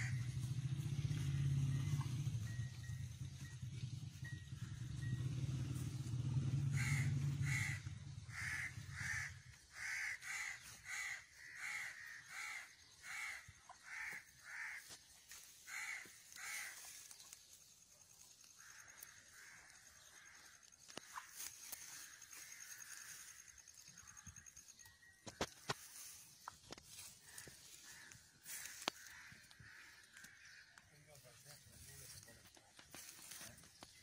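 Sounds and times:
low motor rumble: 0.0 - 13.0, 15.3 - 24.9
bird repeated calls: 0.0 - 34.0.

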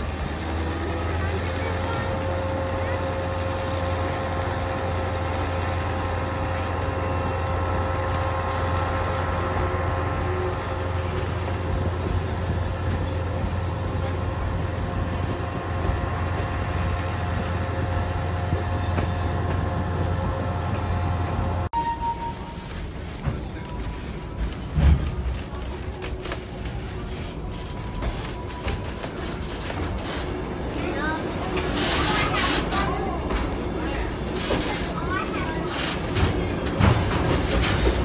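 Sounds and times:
train wheels rumbling on track: 0.0 - 38.0
high-pitched wheel squeal: 6.2 - 9.7, 11.4 - 14.1, 18.5 - 22.5.

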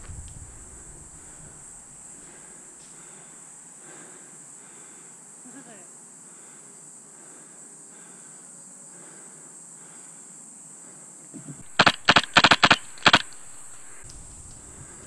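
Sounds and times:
high insect buzz: 0.0 - 15.0
airsoft rifle shots: 11.6 - 14.8.

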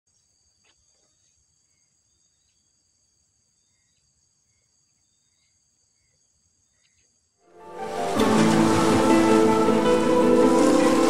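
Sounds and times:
faint insect chirps: 0.1 - 7.5.

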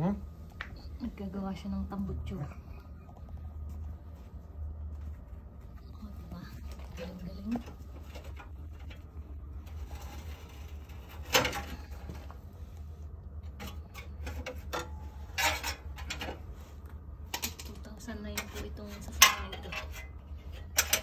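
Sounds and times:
metal scraping: 6.8 - 12.3.

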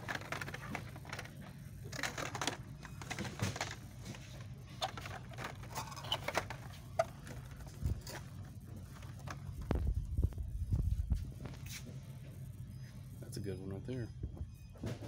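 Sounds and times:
plastic packages clicking and crinkling: 0.0 - 10.4
steady low hum: 0.0 - 15.0.

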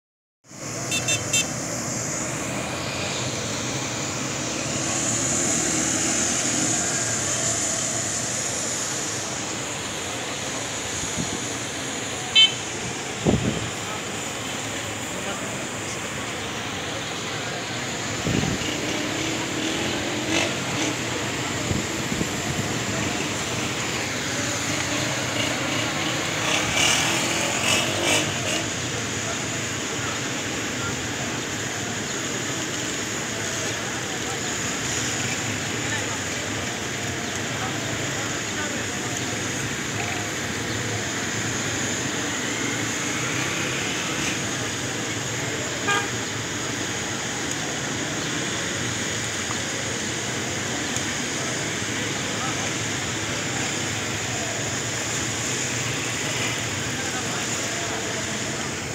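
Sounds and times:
outdoor background noise: 0.4 - 58.9
murmur of many voices: 0.7 - 58.9
motorcycles riding past: 0.8 - 10.6, 18.2 - 29.0.

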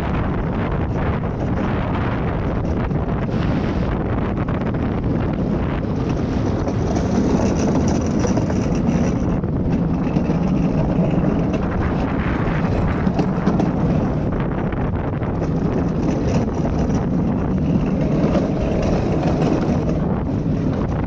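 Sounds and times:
cart wheels rumbling on track: 0.0 - 21.0
wind on microphone: 0.0 - 21.0.

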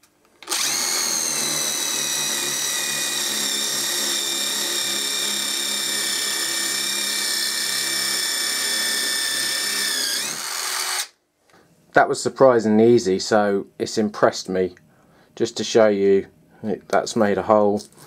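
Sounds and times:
impact driver motor whine: 0.4 - 11.1.

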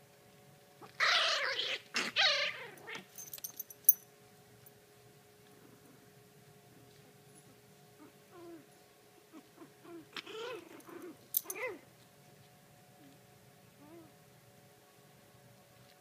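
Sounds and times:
puppies whimpering and yipping: 9.3 - 11.8.

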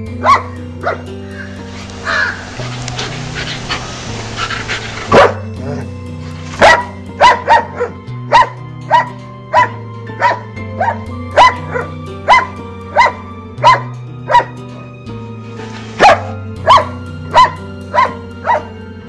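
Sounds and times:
background music: 0.0 - 19.0
dog barking: 0.2 - 1.1, 5.1 - 5.5, 6.6 - 14.6, 16.0 - 18.8.

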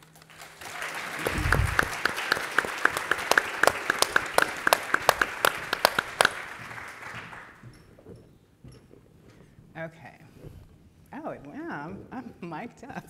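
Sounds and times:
sharp close claps: 0.0 - 7.6
audience applauding: 0.0 - 7.7.

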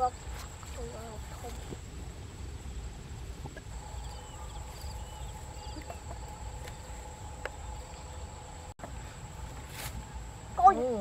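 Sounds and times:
high insect drone: 0.0 - 11.0
mid-pitched hum: 0.0 - 11.0
bird chirps: 3.7 - 8.4.

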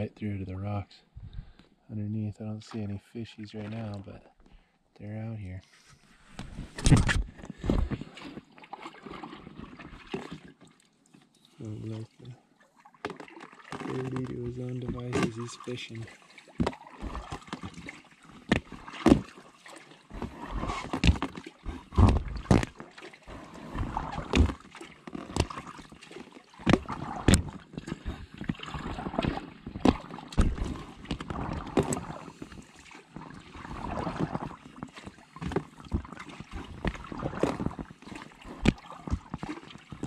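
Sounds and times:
water drips and splashes: 2.7 - 4.2, 8.0 - 40.0
paddle pulling through water: 3.5 - 4.0, 5.9 - 40.0.

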